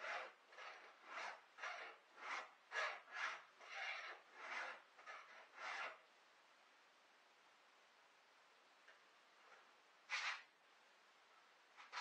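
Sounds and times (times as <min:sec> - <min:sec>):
hand file rasping on chain: 0:00.0 - 0:06.0.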